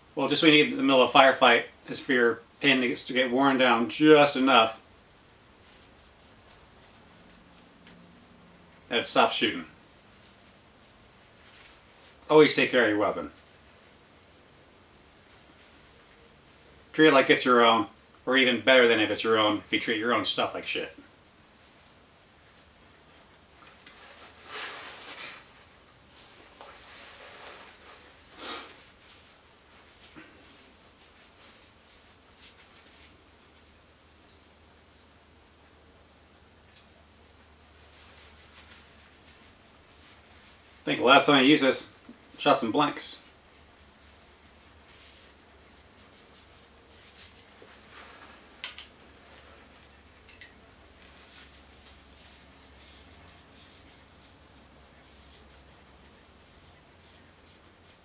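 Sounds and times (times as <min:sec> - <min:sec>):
tissue paper rustling on metal: 0:23.9 - 0:33.2, 0:43.1 - 0:48.5, 0:51.0 - 0:55.7.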